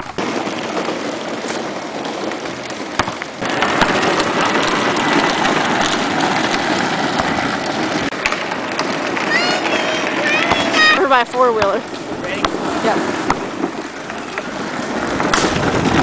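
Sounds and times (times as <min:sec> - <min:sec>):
plastic wheels rolling on pavement: 0:00.0 - 0:16.0.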